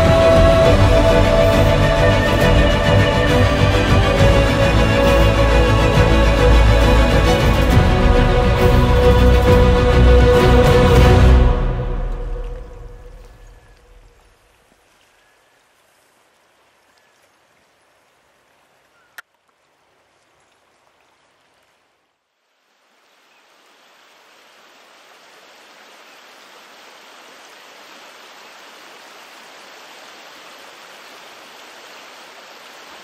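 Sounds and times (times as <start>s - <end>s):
river water rushing: 0.0s - 18.9s, 19.8s - 33.0s.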